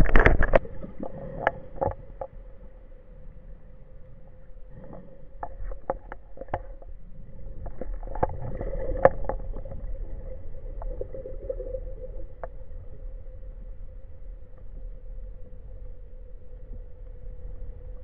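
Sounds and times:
sharp clicks and knocks: 0.0s - 2.4s
underwater hum: 0.0s - 18.0s.

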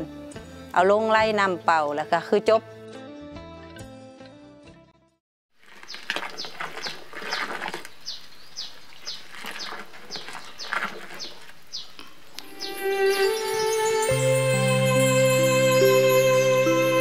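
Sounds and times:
liquid sloshing and splashing: 5.6s - 12.0s
bird peeping: 7.9s - 13.1s.

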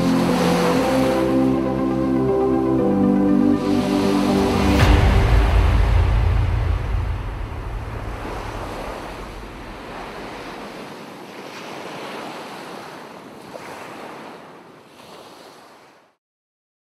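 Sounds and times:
ocean waves washing in: 0.0s - 16.2s.

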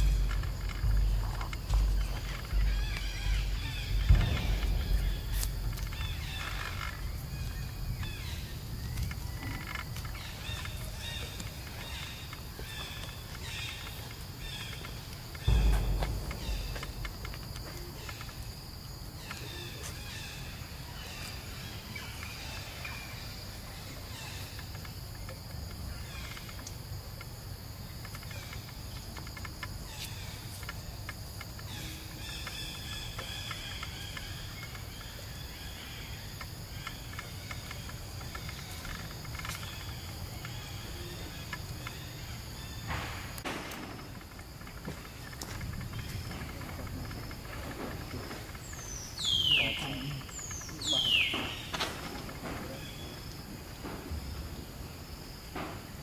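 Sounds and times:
low rumble: 0.0s - 9.4s, 15.4s - 19.1s
forest insects droning: 0.0s - 56.0s.

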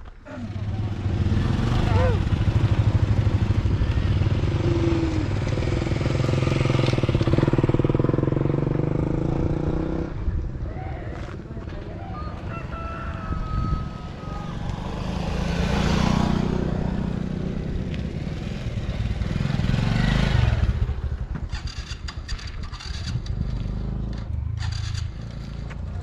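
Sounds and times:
motorcycle engine running: 0.4s - 10.0s.

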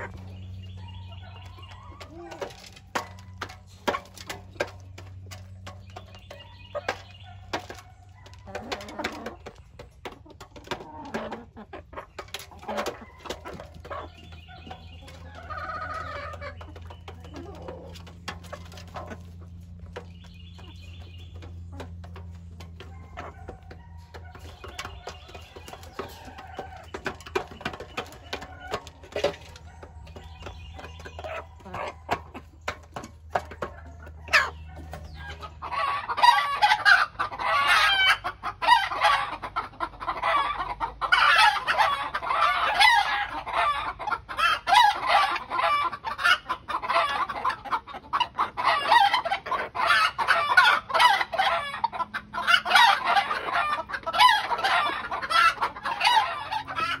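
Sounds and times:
chickens clucking: 0.0s - 57.0s.

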